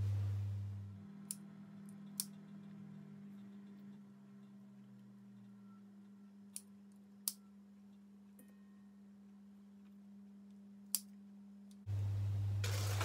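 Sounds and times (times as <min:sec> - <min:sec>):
faint low hum: 0:00.0 - 0:13.0
scissors clicking through bone: 0:02.1 - 0:02.4.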